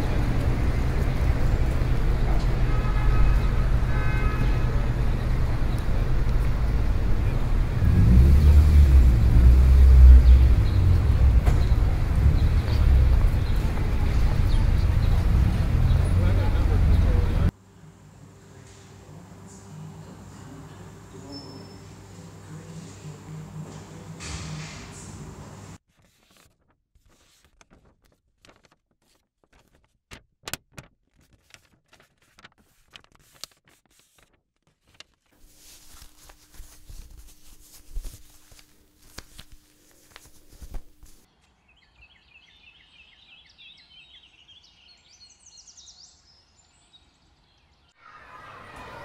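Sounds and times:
small birds chirping: 0:41.3 - 0:48.0.

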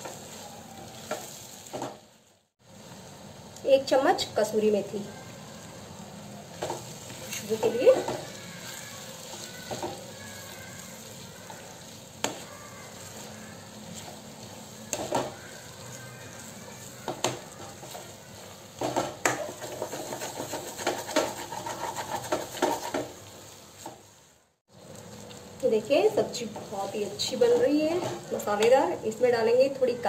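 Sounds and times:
wooden spatula scraping a pan: 0:00.0 - 0:02.0, 0:06.5 - 0:24.1, 0:26.0 - 0:29.3
vegetables sizzling in a pan: 0:00.0 - 0:30.0.

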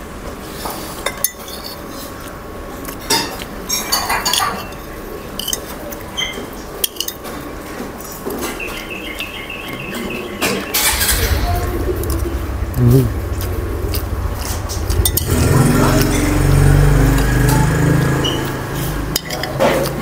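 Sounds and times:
spoon scraping against bowl: 0:18.2 - 0:20.0.

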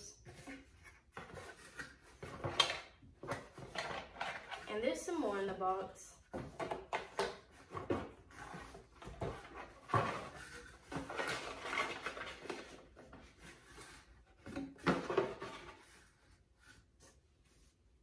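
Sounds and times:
cardboard rustling and scraping: 0:00.2 - 0:04.7, 0:06.3 - 0:18.0.

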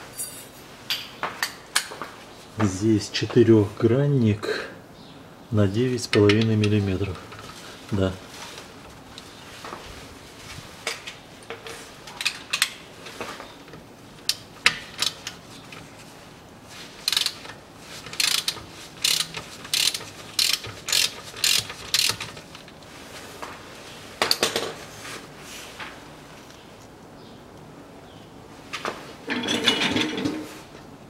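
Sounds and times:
hand ratchet clicking: 0:17.0 - 0:22.7.

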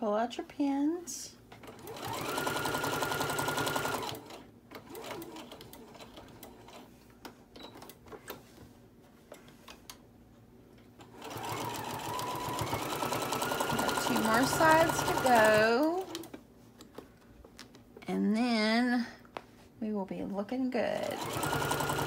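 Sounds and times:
sewing machine stitching: 0:01.6 - 0:06.9, 0:11.0 - 0:16.3, 0:21.0 - 0:22.0.

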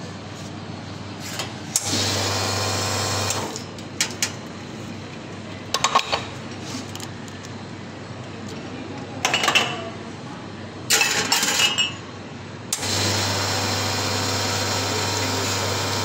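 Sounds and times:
espresso machine pump running: 0:01.8 - 0:07.9, 0:12.8 - 0:16.0.

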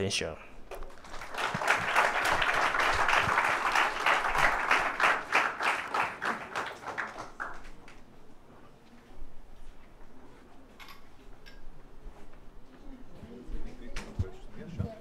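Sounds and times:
audience applauding: 0:00.8 - 0:08.0.

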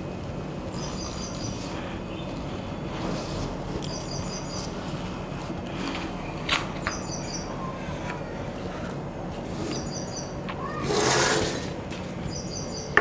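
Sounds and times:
low steady hum: 0:00.0 - 0:10.8
bird chirping: 0:00.7 - 0:02.4, 0:03.8 - 0:04.8, 0:06.8 - 0:07.7, 0:09.6 - 0:10.4, 0:12.3 - 0:13.0.

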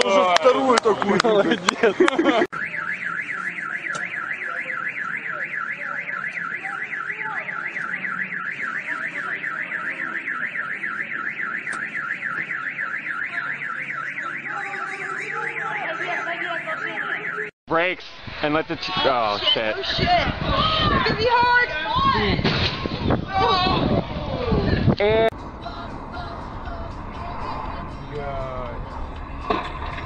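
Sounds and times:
car alarm warbling: 0:02.3 - 0:17.5.

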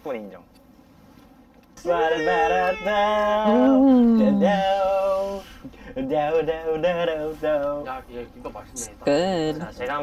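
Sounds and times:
man singing: 0:01.8 - 0:05.4.

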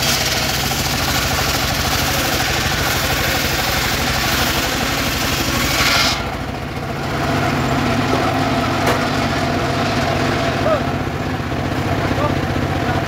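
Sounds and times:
saw blade cutting wood: 0:00.0 - 0:06.5
sawmill engine drone: 0:00.0 - 0:13.0.

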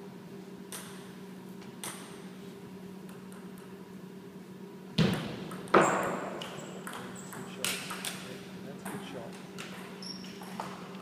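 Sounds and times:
steady low hum: 0:00.0 - 0:11.0
table tennis ball hitting bat and table: 0:05.0 - 0:10.8.

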